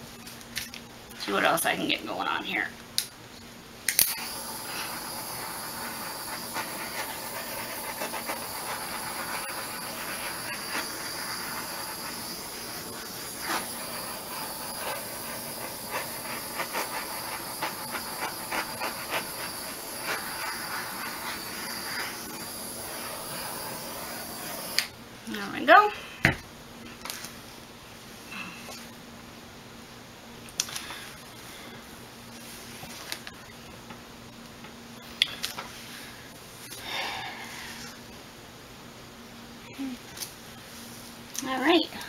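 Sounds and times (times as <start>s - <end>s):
heat tool hissing: 4.0s - 24.9s.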